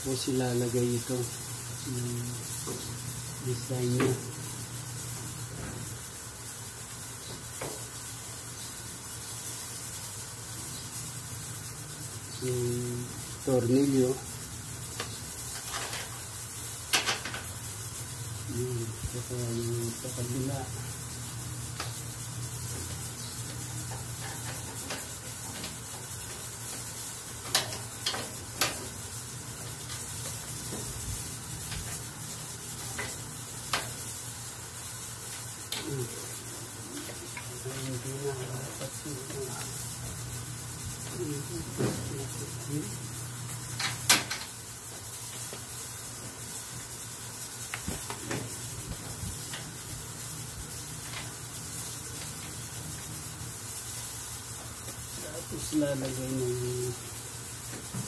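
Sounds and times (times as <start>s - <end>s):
low hum and hiss: 0.0s - 58.0s.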